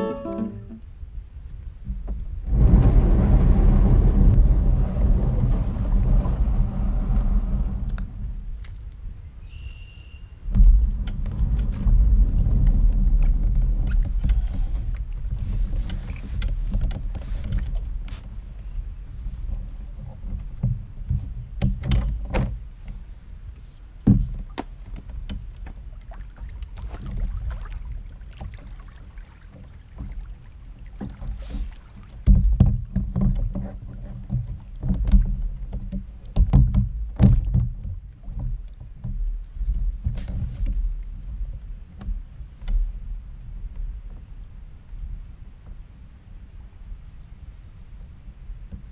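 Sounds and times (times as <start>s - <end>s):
low rumble: 2.2s - 9.4s, 10.4s - 21.6s
paddle knocking on hull: 10.5s - 18.6s, 19.2s - 23.0s, 24.0s - 43.0s
paddle splashes: 10.5s - 43.1s.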